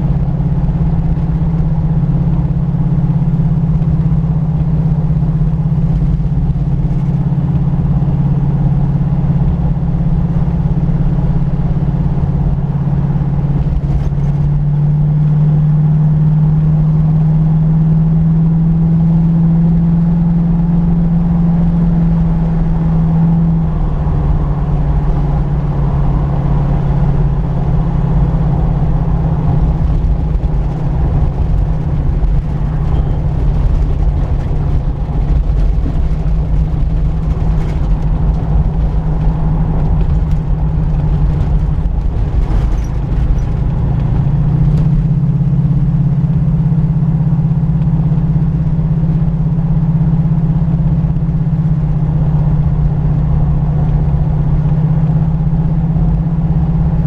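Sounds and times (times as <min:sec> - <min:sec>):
tyre and wind noise: 0:00.0 - 0:17.4, 0:18.4 - 0:57.0
car engine running: 0:00.0 - 0:57.0.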